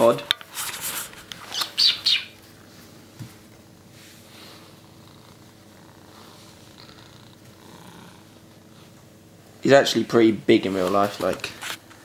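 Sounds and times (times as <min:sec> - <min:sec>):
cat purring: 0:04.3 - 0:09.0.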